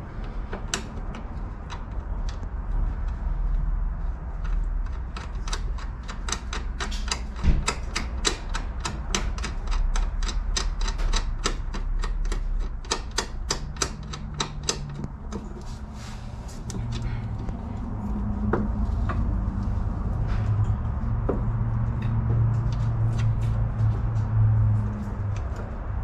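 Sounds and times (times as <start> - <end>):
ratchet wrench clicking: 5.1 - 15.1.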